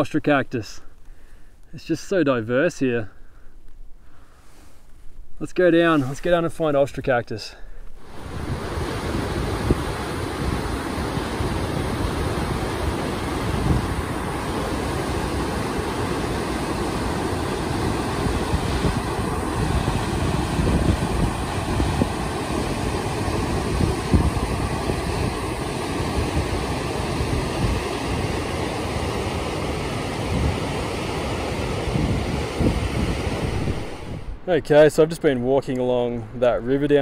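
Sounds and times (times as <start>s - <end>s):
wind gusting on microphone: 7.9s - 37.0s
river rushing over boulders: 8.0s - 34.4s.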